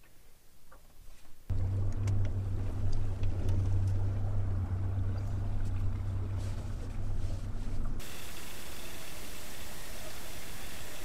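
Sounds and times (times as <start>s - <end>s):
outboard motor humming: 1.5s - 11.0s
rushing water: 8.0s - 11.0s.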